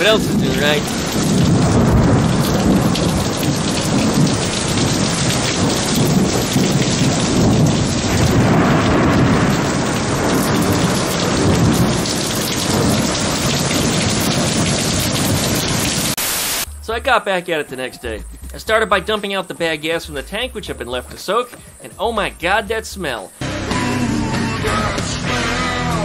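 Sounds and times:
heavy rain pouring: 0:00.0 - 0:16.8
thunder rumbling: 0:00.0 - 0:17.0.

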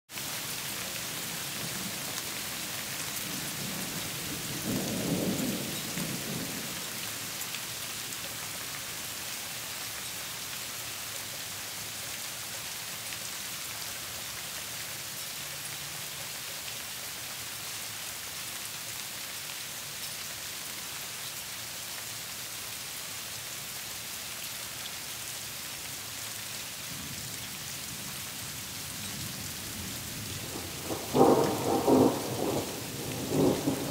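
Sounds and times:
thunder rumbling: 0:29.7 - 0:33.9.

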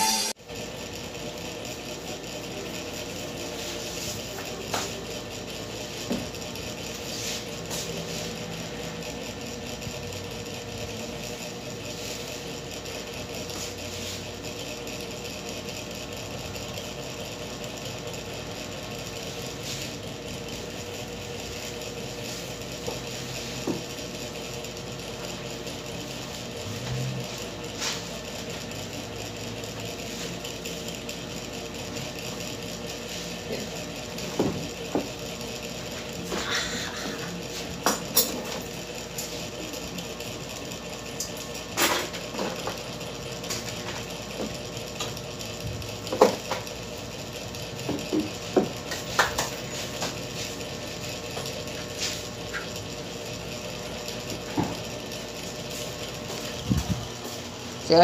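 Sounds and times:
electric hair clipper buzzing: 0:00.0 - 0:16.8, 0:17.8 - 0:46.8.

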